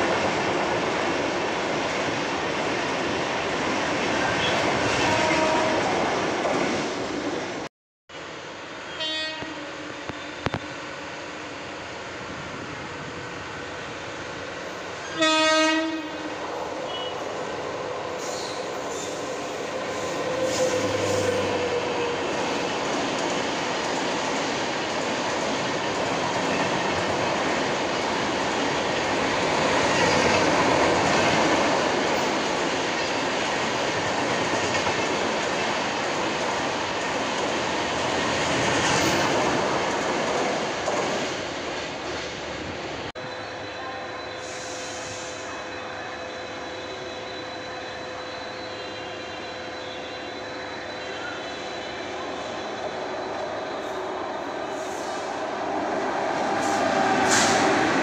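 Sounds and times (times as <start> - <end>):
train wheels rushing on rail: 0.0 - 7.7, 8.7 - 43.4, 44.3 - 58.0
train horn blast: 4.4 - 5.9, 8.9 - 10.6, 15.1 - 16.3.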